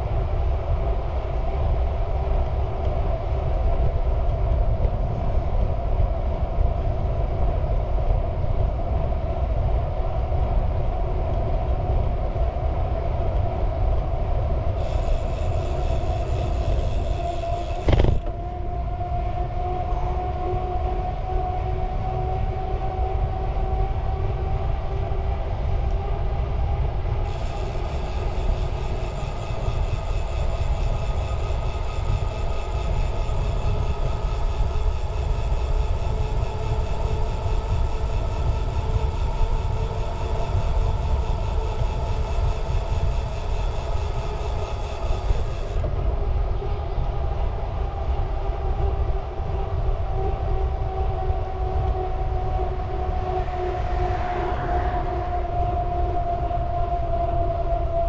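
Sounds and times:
vehicle engine rumbling: 0:14.8 - 0:23.4, 0:47.8 - 0:57.4.

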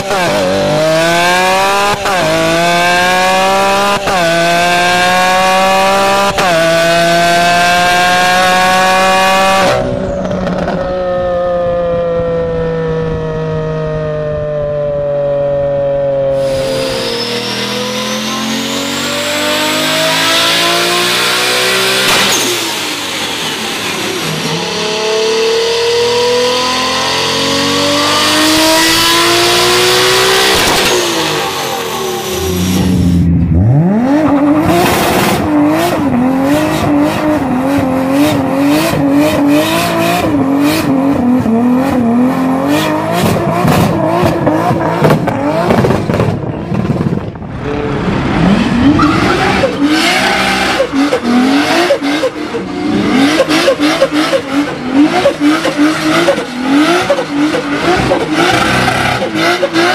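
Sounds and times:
turbocharged car engine revving: 0:00.0 - 0:59.9
tyre squeal: 0:16.4 - 0:18.8, 0:48.4 - 0:51.2
engine bouncing off rev limiter: 0:16.8 - 0:59.9.

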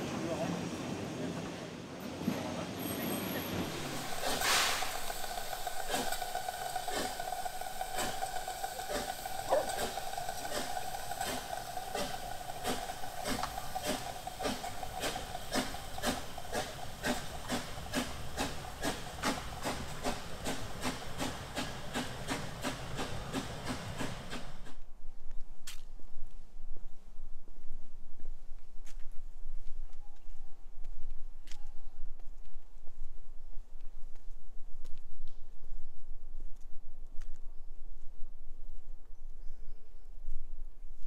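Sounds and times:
locomotive chuffing: 0:02.1 - 0:24.8
steam hissing: 0:02.2 - 0:24.8.

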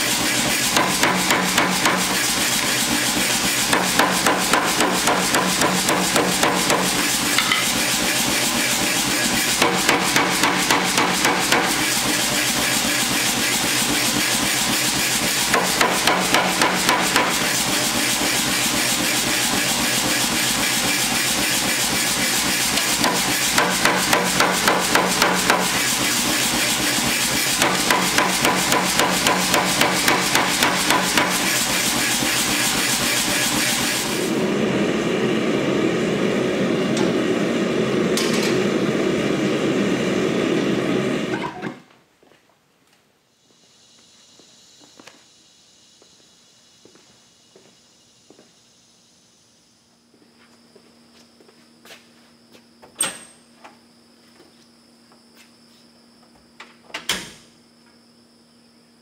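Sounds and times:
power hammer striking hot steel: 0:00.0 - 0:13.0, 0:14.6 - 0:18.8, 0:21.4 - 0:34.2, 0:38.1 - 0:38.6
machine noise: 0:00.0 - 0:41.8.

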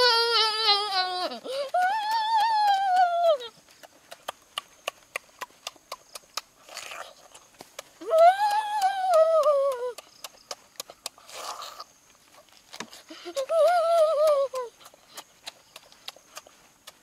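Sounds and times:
person humming mmm: 0:00.0 - 0:03.6, 0:08.0 - 0:10.1, 0:13.0 - 0:15.6
breathy puffs: 0:00.7 - 0:02.0
person chewing food: 0:00.9 - 0:17.0.

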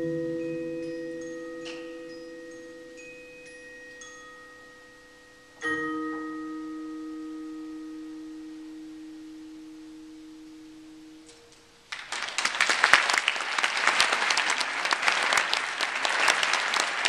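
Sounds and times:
bell-like mallet pings: 0:00.0 - 0:11.5.

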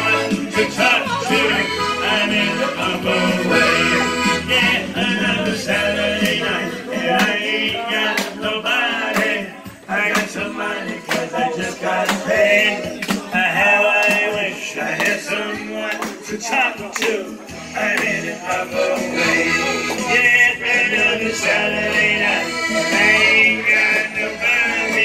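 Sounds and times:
piano accordion playing: 0:00.0 - 0:06.9, 0:18.9 - 0:25.0
percussive beat: 0:00.0 - 0:17.3.

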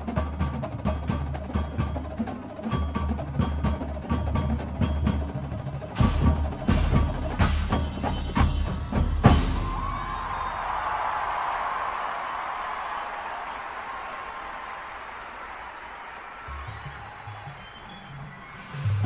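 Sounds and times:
drums and mallet percussion: 0:00.0 - 0:10.8, 0:16.5 - 0:19.0
crowd applause: 0:06.7 - 0:19.0.

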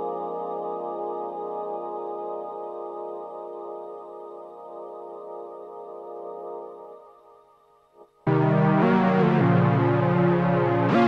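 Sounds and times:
synthesizer pad chord: 0:08.3 - 0:11.0.

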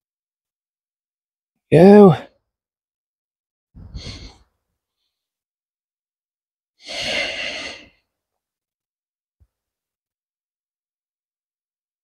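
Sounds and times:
man exhaling: 0:03.8 - 0:04.4, 0:06.8 - 0:08.0.

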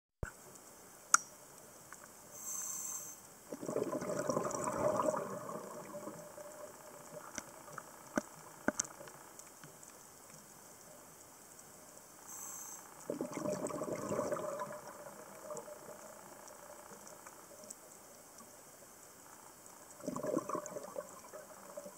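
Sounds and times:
scuba regulator inhale: 0:02.3 - 0:03.2, 0:12.3 - 0:12.9
bubbling exhaust underwater: 0:03.5 - 0:09.2, 0:12.4 - 0:17.5, 0:19.8 - 0:21.9.

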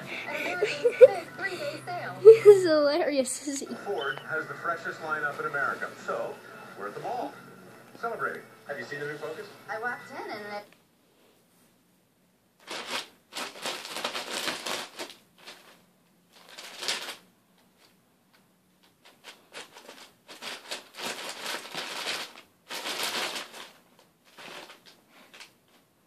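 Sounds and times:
paper bag rustling: 0:12.6 - 0:18.0, 0:18.8 - 0:25.9.

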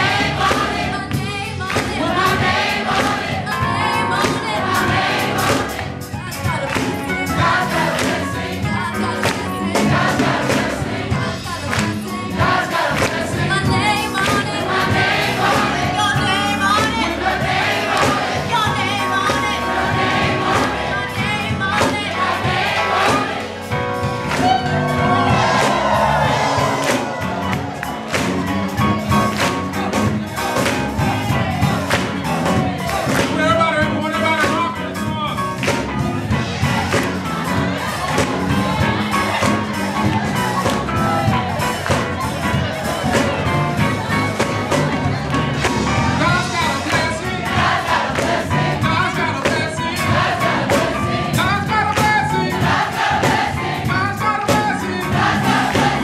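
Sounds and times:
choir singing gospel: 0:00.0 - 0:56.0
hand claps: 0:06.6 - 0:07.1, 0:24.3 - 0:24.8, 0:26.8 - 0:31.0.

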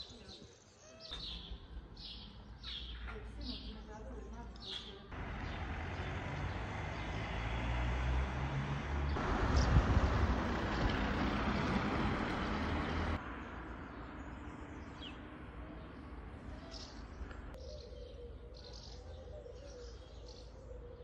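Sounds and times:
street rushing noise with rumble: 0:05.1 - 0:17.5
bird chirping: 0:13.9 - 0:21.0.

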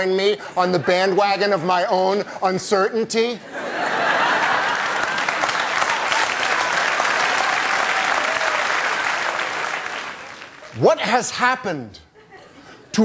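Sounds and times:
studio audience applauding: 0:04.1 - 0:11.2.

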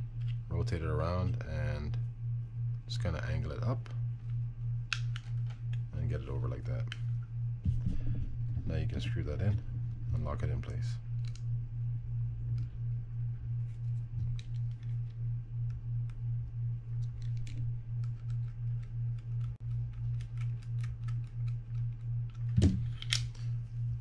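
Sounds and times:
pulsing low hum: 0:00.0 - 0:24.0.

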